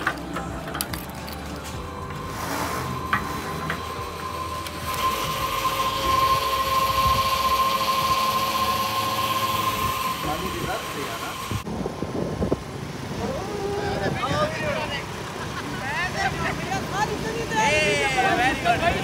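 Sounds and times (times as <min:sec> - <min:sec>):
fuel rushing hiss with whine: 0:00.0 - 0:13.2.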